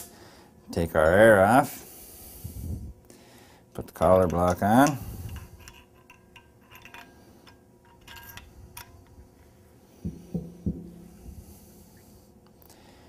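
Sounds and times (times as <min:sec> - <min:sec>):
soft dull thumps: 0:10.0 - 0:11.1.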